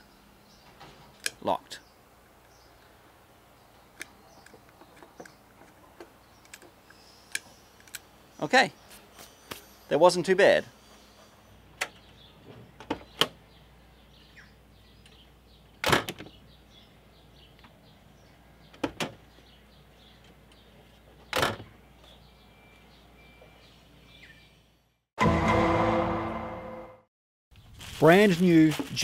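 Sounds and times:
music: 25.2s - 27.0s.

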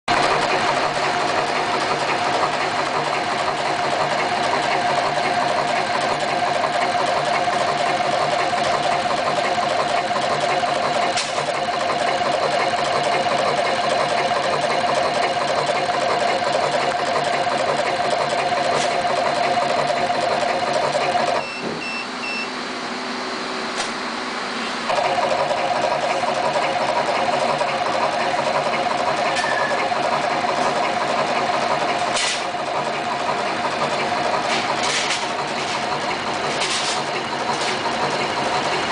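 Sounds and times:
wire cutting machine running: 0.1s - 38.9s
short beeps: 21.4s - 22.5s.

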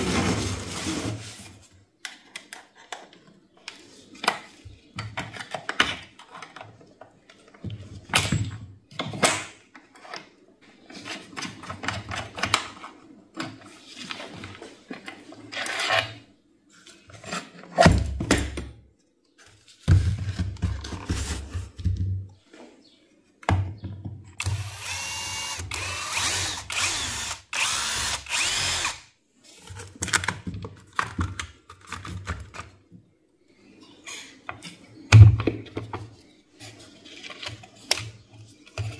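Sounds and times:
cordless drill running in bursts: 24.4s - 29.0s.

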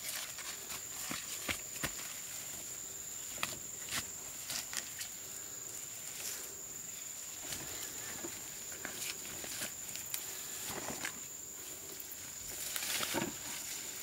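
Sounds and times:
rustles and footfalls in leaves: 7.2s - 14.0s.

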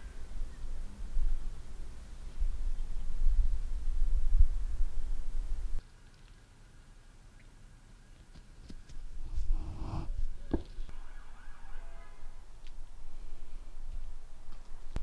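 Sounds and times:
cat rustling past microphone: 9.2s - 10.6s.

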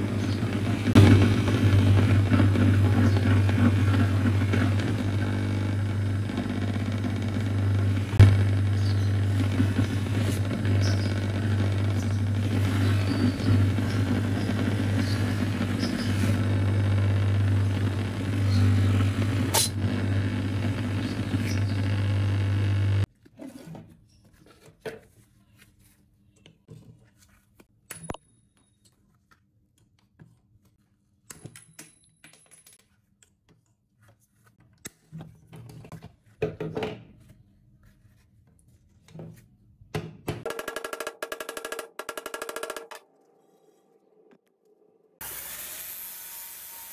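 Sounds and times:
bench grinder motor hum: 0.0s - 23.1s, 45.2s - 46.9s.

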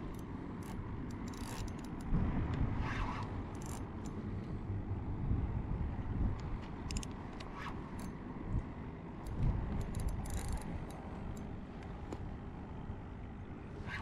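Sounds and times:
wind and water rumbling: 0.0s - 14.0s
fishing reel clicking: 0.1s - 2.1s, 3.5s - 4.2s, 9.2s - 11.4s.

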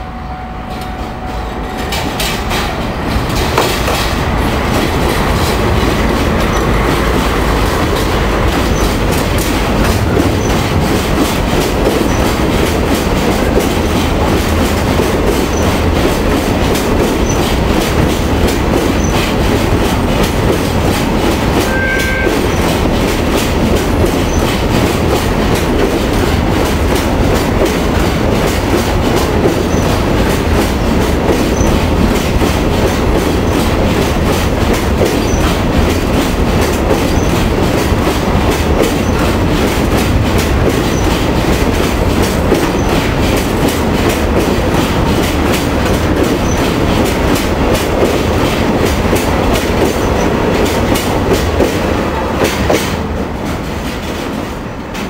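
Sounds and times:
freight train rumbling past: 0.0s - 55.0s
wheels clacking over rail joints: 0.8s - 55.0s
high wheel squeal: 21.7s - 22.7s.

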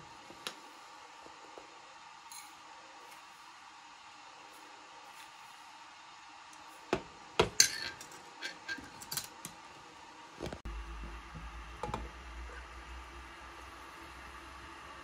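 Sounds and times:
low steady hum: 0.0s - 15.0s
dishes and cutlery clinking: 7.4s - 9.4s.

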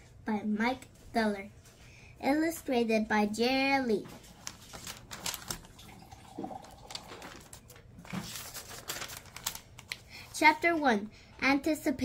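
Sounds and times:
paper pages rustling: 4.0s - 5.8s, 6.6s - 10.1s.

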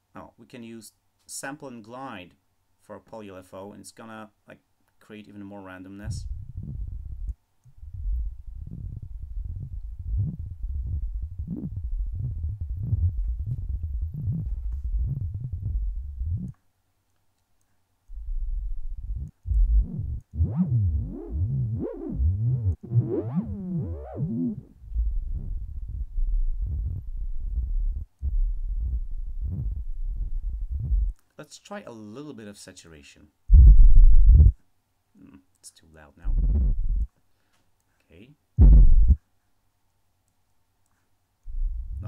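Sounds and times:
synthesizer deep bubbling tone: 6.1s - 16.5s, 18.2s - 29.9s
synthesizer filter sweep whooshing: 18.2s - 28.1s.

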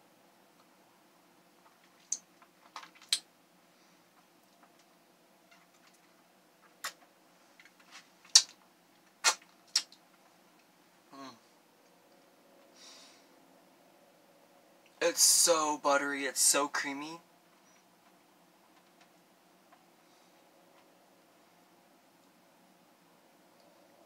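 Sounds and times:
wet lip smacks and clicks: 6.8s - 7.0s, 8.2s - 8.6s, 9.2s - 10.0s
person humming: 11.1s - 11.5s.

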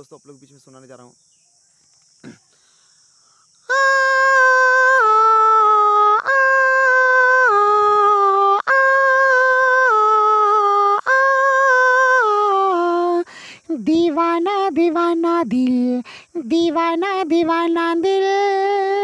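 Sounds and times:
man humming in falsetto: 3.7s - 13.1s.

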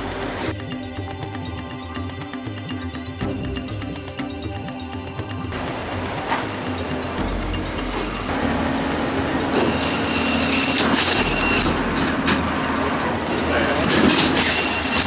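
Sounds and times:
steady background noise: 5.5s - 15.0s
motor hum with high whine: 5.6s - 15.0s.

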